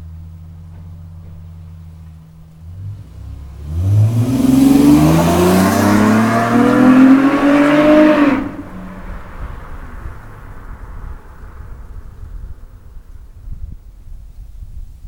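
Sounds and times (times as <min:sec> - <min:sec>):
faint low hum: 0:00.0 - 0:03.8
car engine accelerating: 0:00.0 - 0:13.4.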